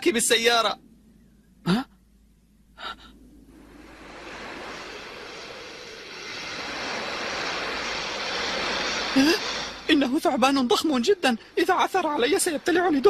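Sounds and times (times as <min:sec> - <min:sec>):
rushing noise: 0:02.8 - 0:13.0.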